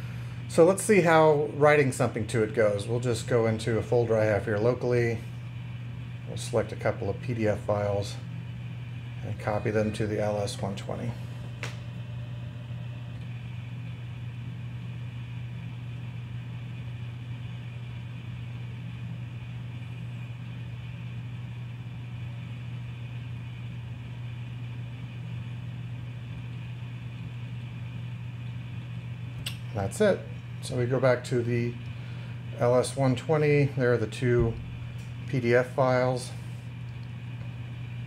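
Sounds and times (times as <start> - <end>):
faint high whine: 0.0 - 17.0
low hum: 0.0 - 22.4, 26.1 - 38.0
click: 29.4 - 29.6, 36.9 - 37.5.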